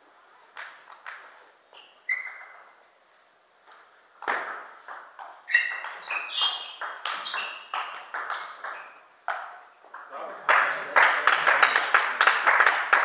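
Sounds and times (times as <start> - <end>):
ball bouncing on table: 4.2 - 10.1
table tennis ball hitting bats: 4.2 - 13.0.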